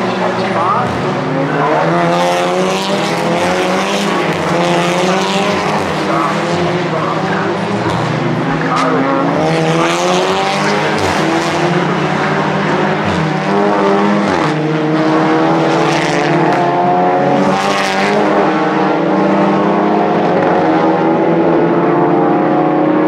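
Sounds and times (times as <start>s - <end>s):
race car engines accelerating: 0.0s - 23.0s.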